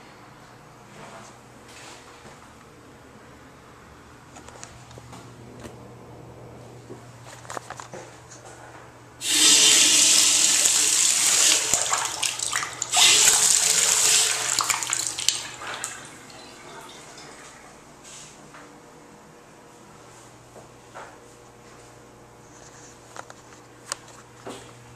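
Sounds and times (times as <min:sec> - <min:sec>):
faucet water splashing into sink: 0:09.2 - 0:17.5.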